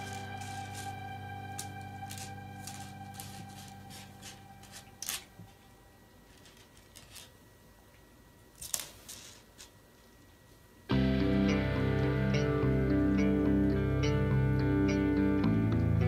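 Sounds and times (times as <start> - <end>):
soft guitar background music: 0.0 - 5.4, 10.9 - 16.0.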